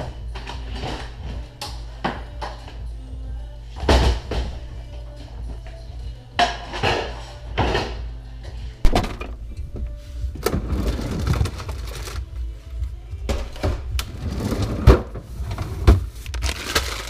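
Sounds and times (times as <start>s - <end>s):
items moved in a refrigerator: 8.8s - 12.5s, 13.2s - 17.0s.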